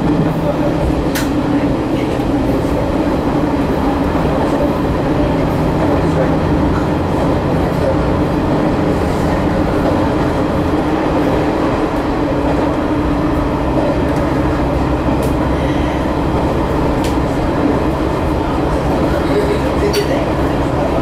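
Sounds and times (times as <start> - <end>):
diesel engine drone: 0.0 - 21.0.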